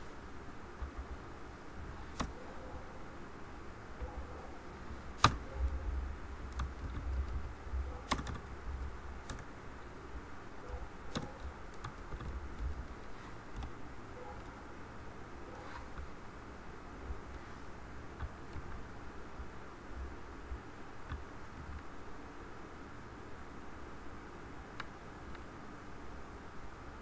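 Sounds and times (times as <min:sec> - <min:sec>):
low background hum: 0:00.0 - 0:27.0
keyboard and mouse clicks: 0:02.1 - 0:02.4, 0:05.2 - 0:05.8, 0:06.4 - 0:09.5, 0:10.7 - 0:13.8, 0:14.4 - 0:14.6, 0:18.2 - 0:18.9.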